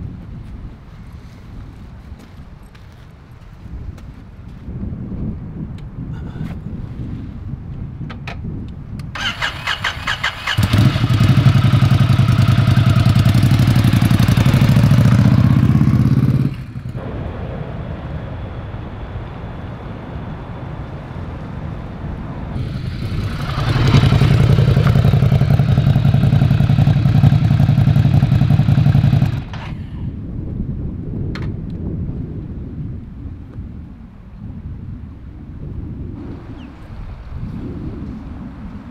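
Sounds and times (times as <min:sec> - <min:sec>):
motorcycle starter cranking: 0:09.2 - 0:13.5
motorcycle engine idling loudly: 0:09.2 - 0:17.0, 0:22.6 - 0:29.8.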